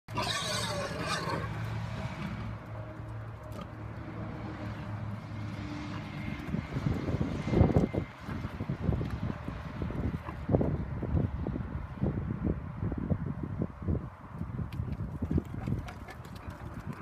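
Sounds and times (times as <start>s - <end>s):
engine hum: 0.1s - 12.2s.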